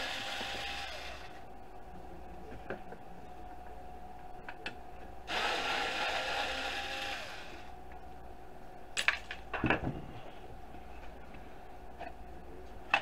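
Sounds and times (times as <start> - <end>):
cordless drill motor whir: 0.0 - 1.4, 5.3 - 7.7.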